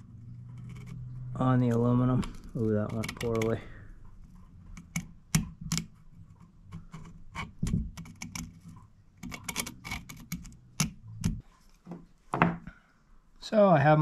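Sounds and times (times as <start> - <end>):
tools clicking and tapping: 2.2 - 3.6, 4.7 - 11.4.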